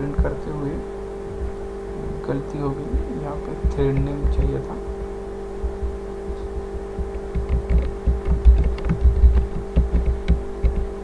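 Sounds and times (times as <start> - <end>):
steady electrical hum: 0.0 - 11.0
keyboard key clicks: 7.3 - 10.9.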